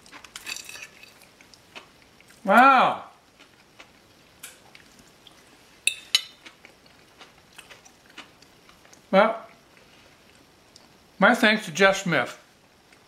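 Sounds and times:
chewing: 0.0s - 2.4s, 3.3s - 11.0s
fork clinking on plate: 5.9s - 6.4s.

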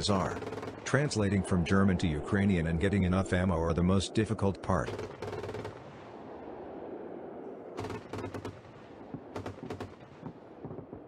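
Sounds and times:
autocannon bursts: 0.1s - 0.9s
low rushing noise: 5.7s - 7.9s.

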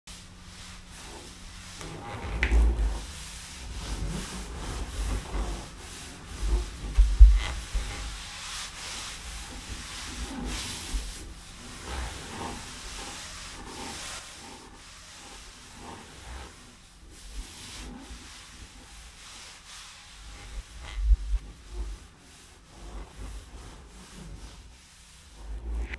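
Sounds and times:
brushing and hissing: 0.1s - 25.9s
rubbing and scraping strokes: 0.1s - 25.9s
soft low thumps: 6.3s - 8.4s, 20.4s - 21.7s.

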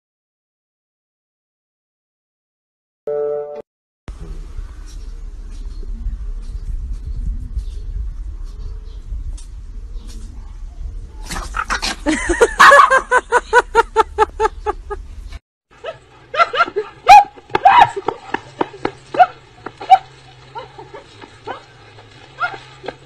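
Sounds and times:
dog yapping rapidly: 11.2s - 13.0s, 15.8s - 18.5s, 19.1s - 23.0s
dog yelping and barking: 12.6s - 13.1s, 15.8s - 18.1s, 19.1s - 21.7s, 22.4s - 22.9s.

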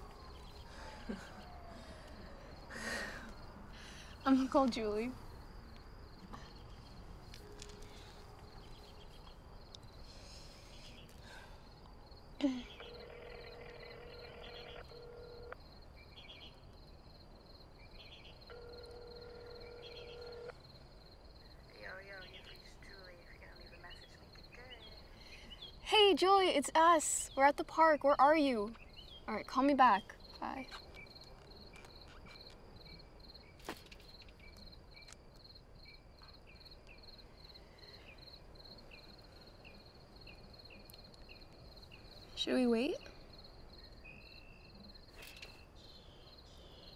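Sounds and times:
crickets chirping: 0.0s - 46.9s
telephone ringback tone: 12.8s - 15.6s, 18.5s - 20.5s.

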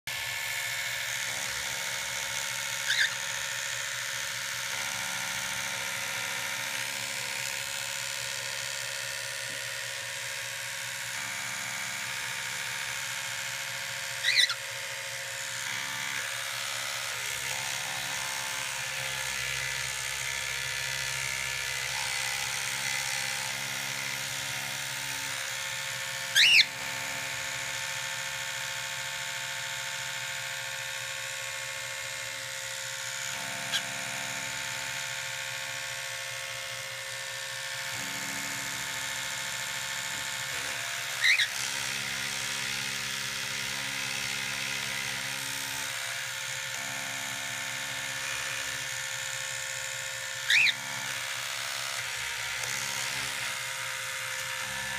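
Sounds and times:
electric toothbrush buzzing: 0.0s - 54.9s
cockatiel chirping: 2.8s - 3.2s, 14.2s - 14.6s, 26.3s - 26.7s, 41.2s - 41.5s, 50.5s - 50.8s.

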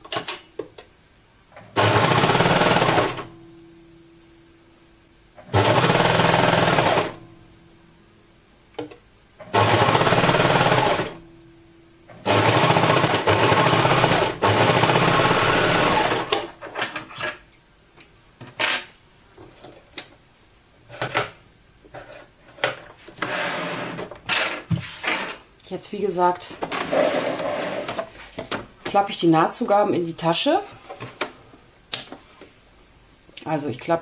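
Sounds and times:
overlock machine stitching: 1.7s - 3.3s, 5.4s - 7.2s, 9.5s - 11.2s, 12.2s - 16.5s.

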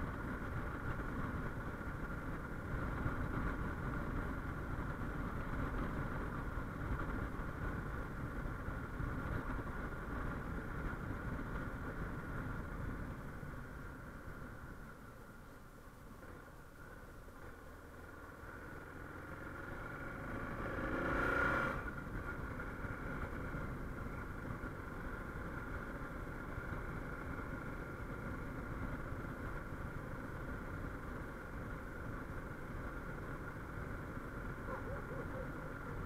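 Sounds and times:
low wind rumble: 0.0s - 36.0s
motorcycle engine accelerating: 17.3s - 36.0s.

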